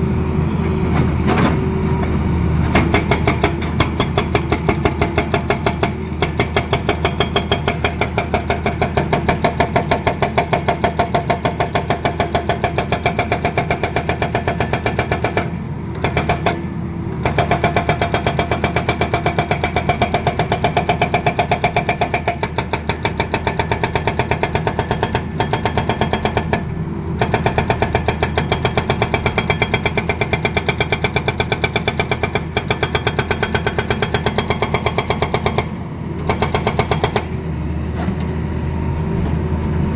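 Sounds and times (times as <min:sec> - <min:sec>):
hydraulic rock breaker hammering: 0:02.6 - 0:37.4
diesel engine running: 0:35.6 - 0:39.9.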